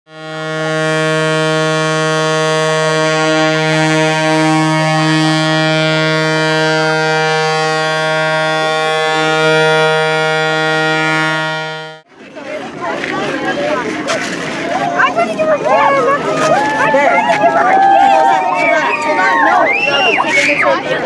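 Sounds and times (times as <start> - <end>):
low ship horn blast: 0.1 - 12.1.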